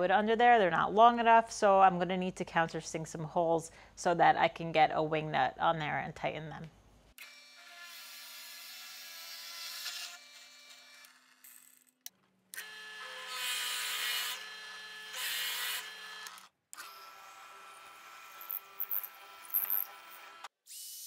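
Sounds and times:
drill bit boring into wood: 12.6 - 20.5.

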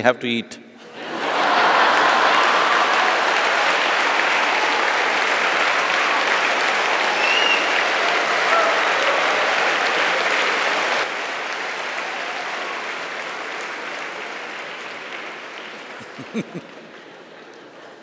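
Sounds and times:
audience laughing: 0.8 - 4.8, 16.0 - 18.0
audience applauding: 0.9 - 18.0.

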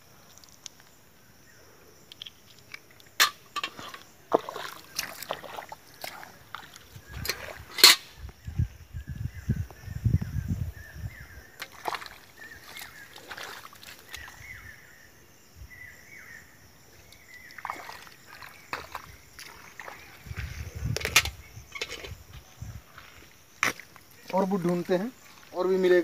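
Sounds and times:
sloshing in muddy water: 3.6 - 8.2, 11.6 - 14.8, 17.1 - 22.2.

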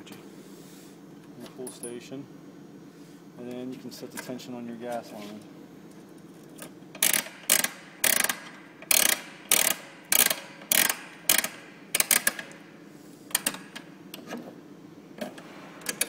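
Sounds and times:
ratchet clicking: 7.0 - 12.5.

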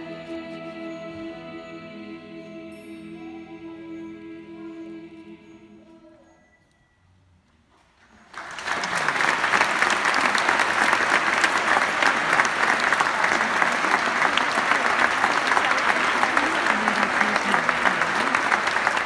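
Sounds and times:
audience applauding: 8.2 - 19.0.

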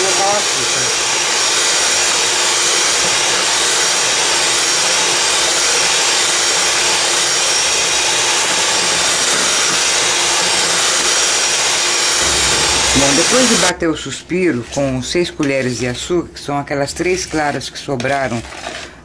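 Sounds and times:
electric mixer whipping: 0.0 - 13.8.

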